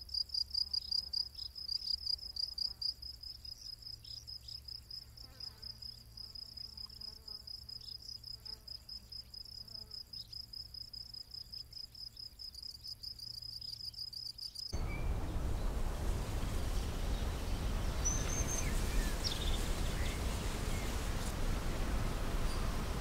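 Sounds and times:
crickets chirping: 0:00.0 - 0:23.0
hissing outdoor background: 0:00.0 - 0:23.0
bird chirp: 0:11.3 - 0:21.3.

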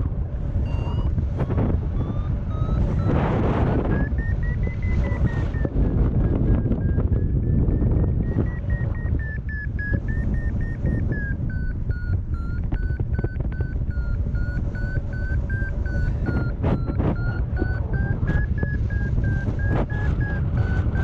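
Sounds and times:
variometer beeping: 0:00.0 - 0:21.0
wind rush on microphone: 0:00.0 - 0:21.0.

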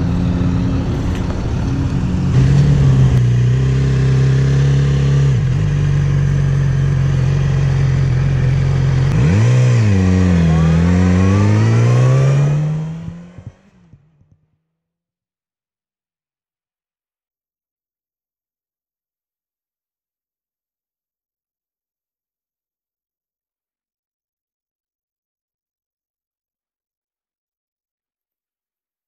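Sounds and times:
motorcycle engine revving: 0:00.0 - 0:14.4.

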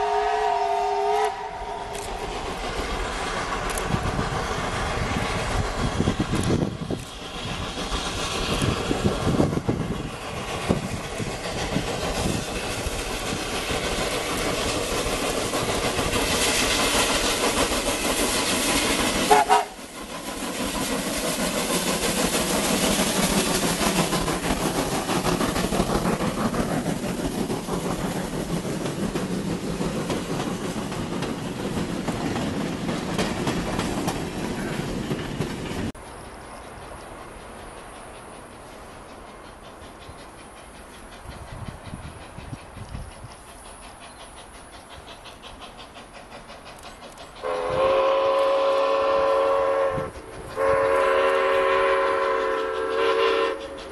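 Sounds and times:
steam locomotive running past: 0:00.0 - 0:53.9.

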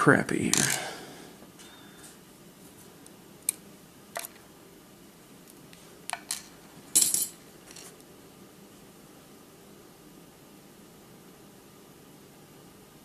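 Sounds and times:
small metal parts clinking: 0:06.1 - 0:07.9.

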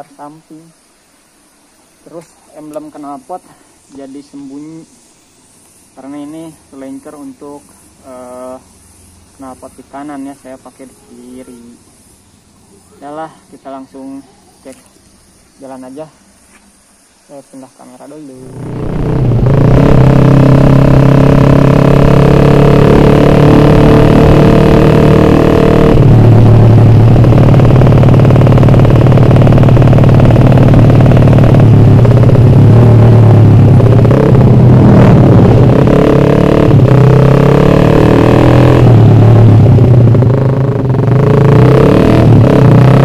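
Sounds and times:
loud motorcycle engine revving: 0:18.0 - 0:43.0.

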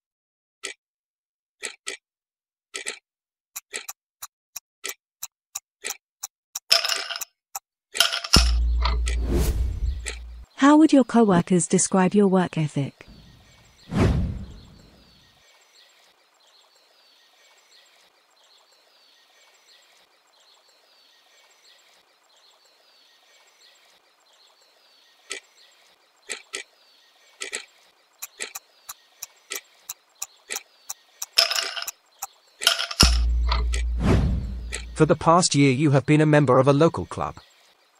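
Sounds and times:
timer ticking: 0:08.4 - 0:10.5, 0:33.0 - 0:35.2
loud deep boom: 0:33.2 - 0:34.8.

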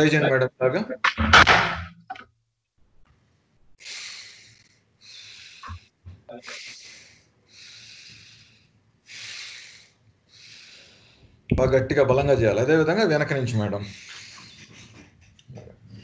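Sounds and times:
person breathing forcefully: 0:03.8 - 0:11.5, 0:13.8 - 0:15.0.

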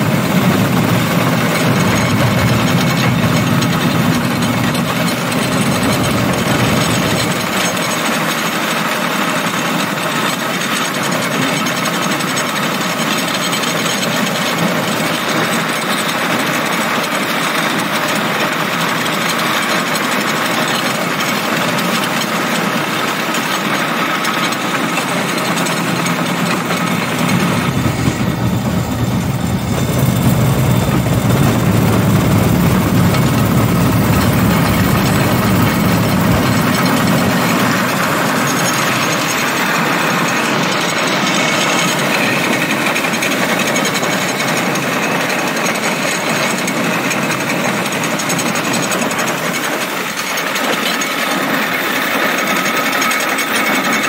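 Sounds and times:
deep rumble: 0:00.0 - 0:07.6, 0:26.3 - 0:40.4
small engine running: 0:00.0 - 0:54.0
wheels rattling on rails: 0:00.0 - 0:54.0.

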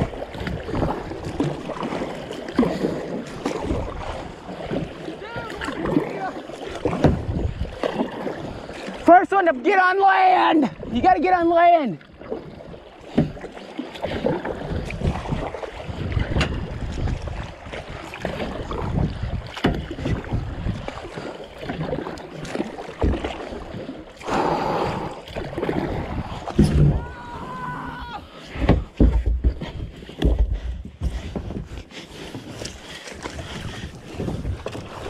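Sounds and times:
paddle strokes splashing water: 0:00.0 - 0:35.0
wind buffeting microphone: 0:02.7 - 0:08.8, 0:14.1 - 0:21.2, 0:24.4 - 0:35.0.

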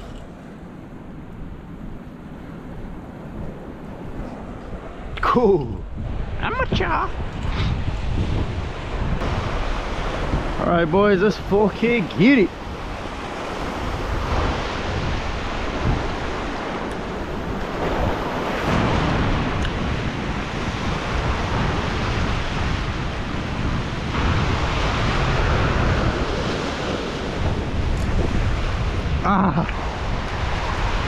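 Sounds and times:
wind buffeting microphone: 0:00.0 - 0:31.0
surf breaking over rocks: 0:08.6 - 0:31.0.

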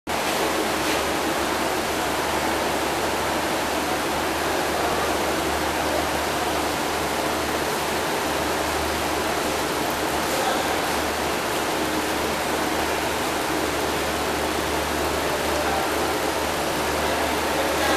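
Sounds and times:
aquarium water rushing: 0:00.1 - 0:17.9
low pump hum: 0:00.1 - 0:17.9.

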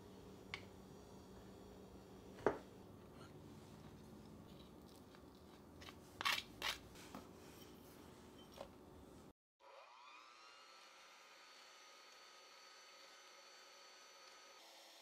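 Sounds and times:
electric hand mixer whine: 0:09.6 - 0:15.0.

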